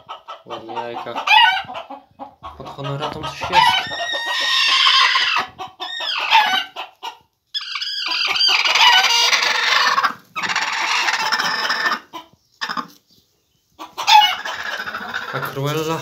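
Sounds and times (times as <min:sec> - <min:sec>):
hen squawking and growling: 0:02.5 - 0:06.7, 0:07.6 - 0:12.9, 0:14.0 - 0:16.0.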